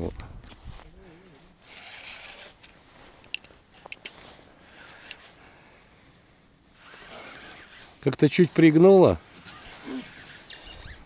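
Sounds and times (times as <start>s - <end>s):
soft rubbing: 0.6s - 11.0s
fishing reel clicks: 1.6s - 2.7s, 3.3s - 5.2s.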